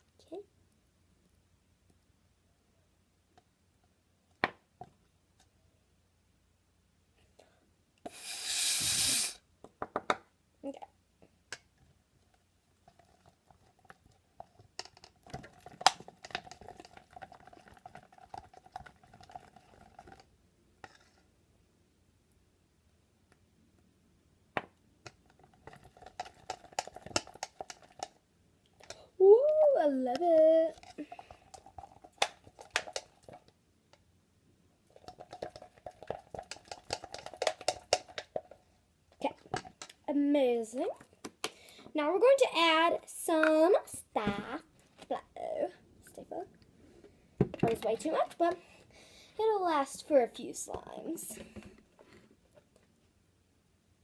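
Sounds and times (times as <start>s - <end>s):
stick stirring glue in plastic cup: 11.5s - 21.4s, 24.6s - 34.0s, 34.8s - 40.1s.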